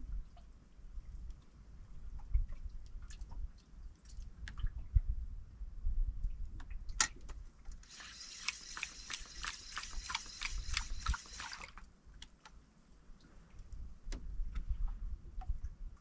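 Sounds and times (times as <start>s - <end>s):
fishing reel clicking: 7.8s - 11.8s.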